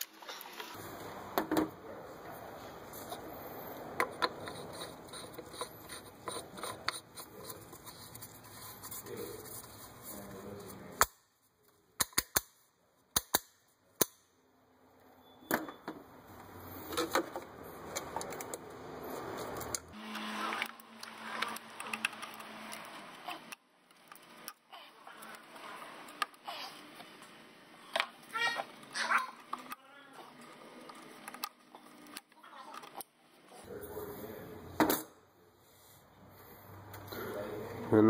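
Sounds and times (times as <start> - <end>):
plastic parts clicking and rattling: 20.5 - 24.6.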